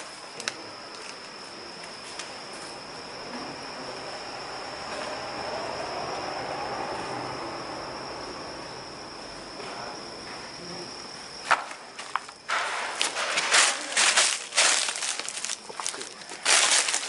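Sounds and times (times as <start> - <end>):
cricket trilling: 0.0 - 17.0
footsteps crunching on dry debris: 12.0 - 17.0.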